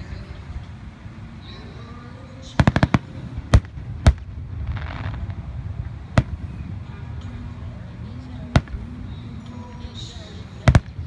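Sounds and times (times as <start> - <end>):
fireworks cracking and banging: 2.4 - 11.0.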